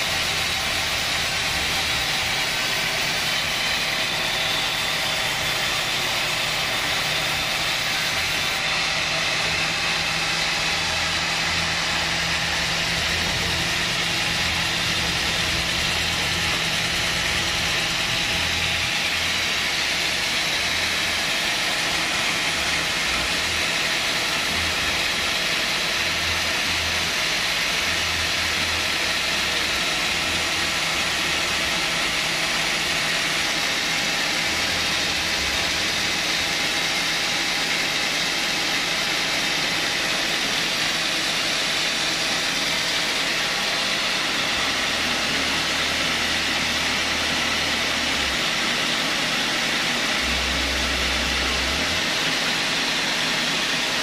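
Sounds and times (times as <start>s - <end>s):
band saw running: 0.0s - 54.0s.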